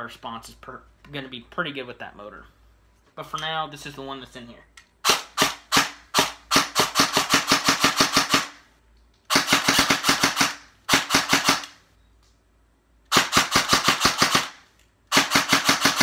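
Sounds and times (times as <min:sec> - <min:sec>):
airsoft gun firing bursts: 0:05.0 - 0:08.6, 0:09.3 - 0:11.8, 0:13.1 - 0:16.0.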